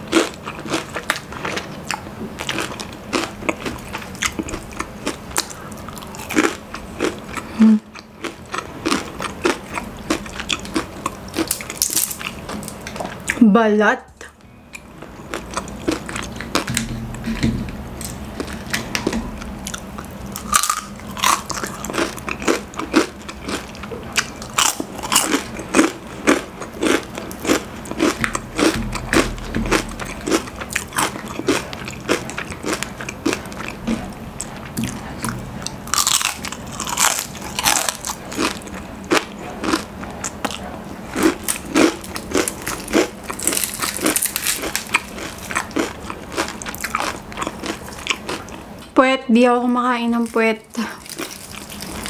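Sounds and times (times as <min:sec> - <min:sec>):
fried chicken skin crunching: 0:18.0 - 0:34.1, 0:35.0 - 0:38.8, 0:41.2 - 0:48.5.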